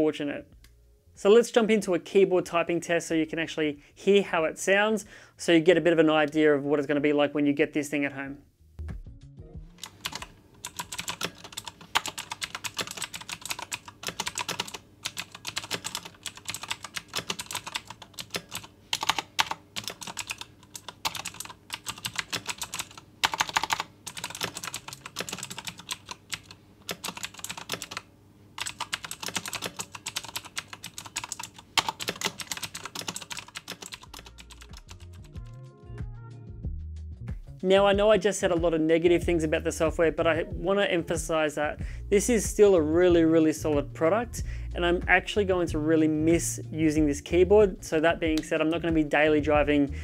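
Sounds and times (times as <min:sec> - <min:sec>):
clicky keyboard typing: 0:09.8 - 0:35.3.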